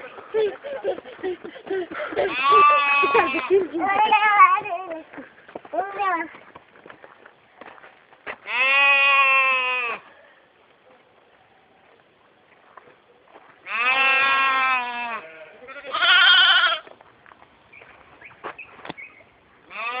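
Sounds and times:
young goats bleating: 2.2s - 4.6s, 8.4s - 10.0s, 13.6s - 16.9s, 19.7s - 20.0s.

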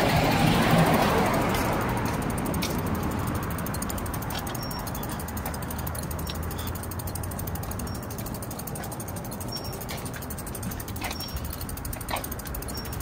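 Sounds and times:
bicycle freewheel clicking: 0.0s - 13.0s
tyres rolling on pavement: 0.0s - 13.0s.

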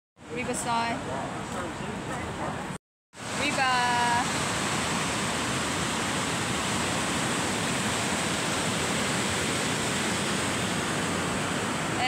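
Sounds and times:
water rushing over a weir: 3.2s - 12.0s.

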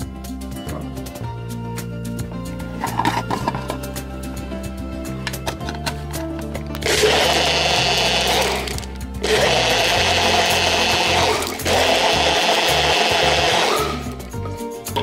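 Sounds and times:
blender motor running: 6.8s - 14.3s.

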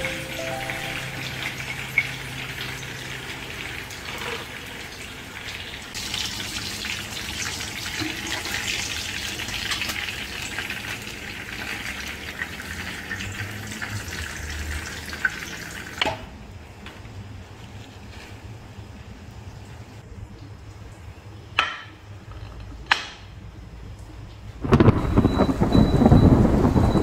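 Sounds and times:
fish sizzling in hot oil: 0.3s - 16.0s.

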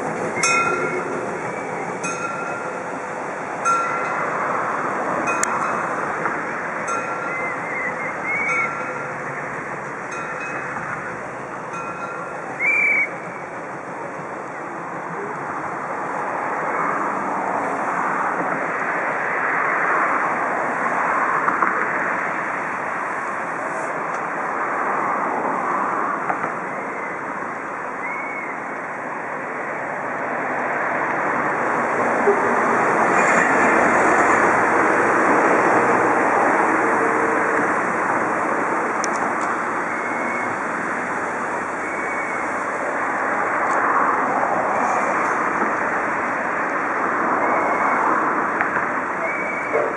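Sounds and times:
steam locomotive running: 0.0s - 19.1s, 28.7s - 49.9s
high wheel squeals: 0.2s - 6.1s, 6.7s - 13.6s, 32.2s - 43.6s, 44.7s - 49.9s.

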